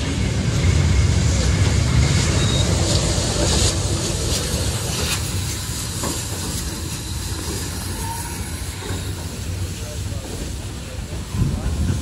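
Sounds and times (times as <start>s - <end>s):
train rumbling on rails: 0.0s - 12.0s
train wheels clicking: 2.8s - 12.0s.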